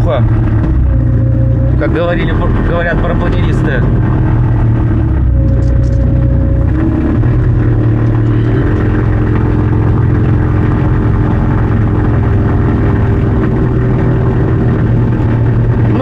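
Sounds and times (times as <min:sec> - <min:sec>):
electric motor and propeller humming: 0:00.0 - 0:16.0.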